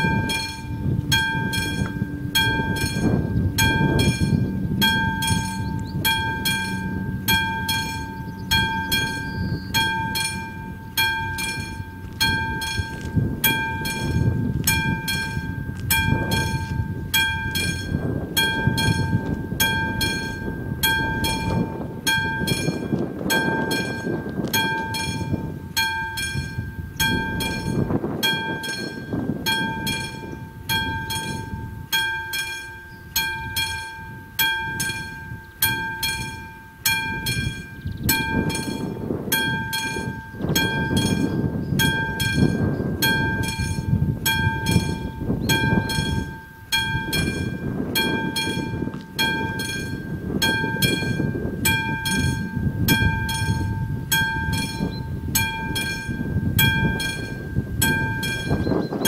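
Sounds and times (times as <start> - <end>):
level-crossing bell ringing: 0.0 - 59.0
low rumbling noise: 0.0 - 59.0.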